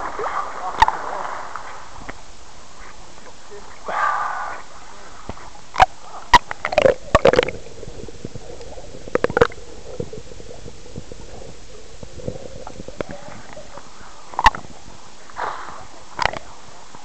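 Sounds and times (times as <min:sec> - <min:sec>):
water gurgling and sloshing: 0:04.5 - 0:17.0
sharp pops and splashes: 0:05.2 - 0:10.2, 0:12.1 - 0:14.7, 0:15.3 - 0:16.5.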